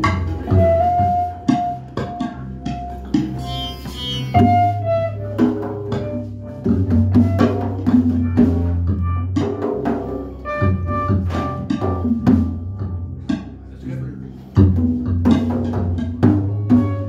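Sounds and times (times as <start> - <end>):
drums and hand percussion: 0.0 - 17.0
low bass notes: 0.0 - 17.0
sustained synthesizer tones: 2.5 - 5.2.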